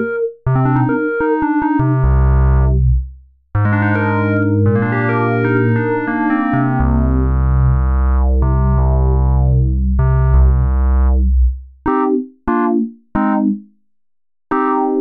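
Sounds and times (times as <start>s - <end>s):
synthesizer chords over deep bass: 0.0s - 3.0s, 3.6s - 12.1s.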